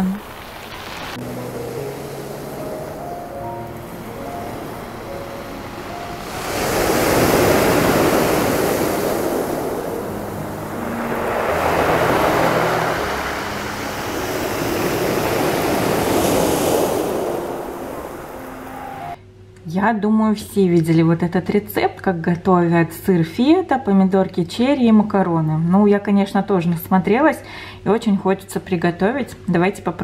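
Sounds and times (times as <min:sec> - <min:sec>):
waves washing up pebble beach: 0:00.0 - 0:19.2.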